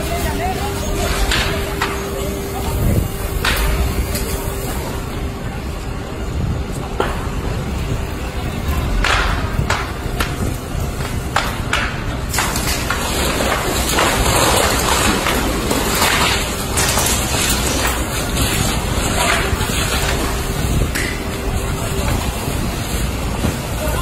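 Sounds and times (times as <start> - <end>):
burning timber cracking and popping: 0.0 - 5.0, 8.0 - 24.0
large fire rushing and rumbling: 0.0 - 24.0
fire hose spraying water: 12.3 - 24.0.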